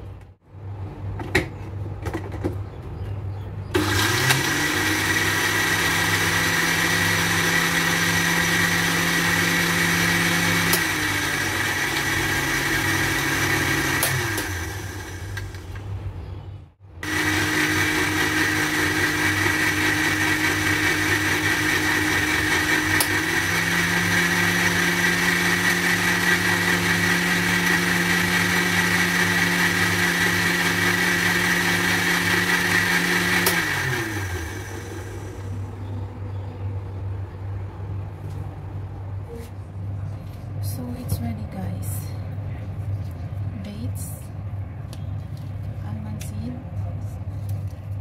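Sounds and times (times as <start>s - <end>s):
blender motor running: 3.8s - 15.6s, 17.0s - 35.5s.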